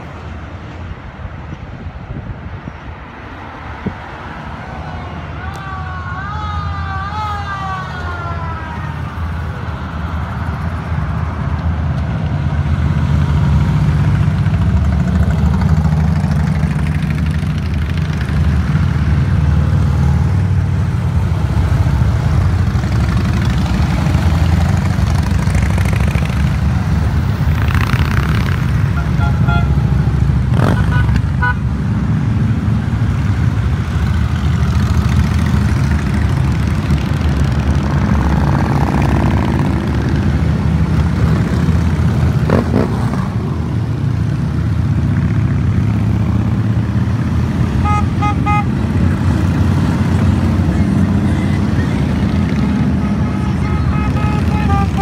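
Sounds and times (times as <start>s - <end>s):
motorcycle engines droning: 4.7s - 55.0s
police siren: 4.9s - 10.0s.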